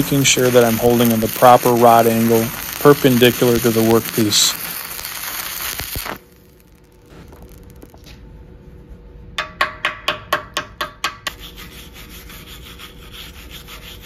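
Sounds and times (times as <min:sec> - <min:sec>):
wire brush scrubbing steel: 0:00.0 - 0:04.5.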